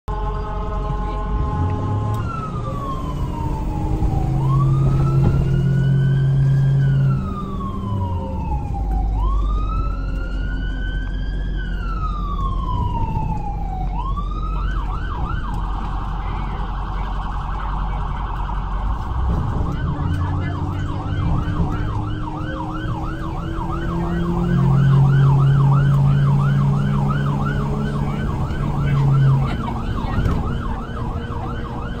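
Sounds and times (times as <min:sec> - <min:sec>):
low steady horn blare: 0:00.1 - 0:02.6
ambulance siren wailing and yelping: 0:00.4 - 0:32.0.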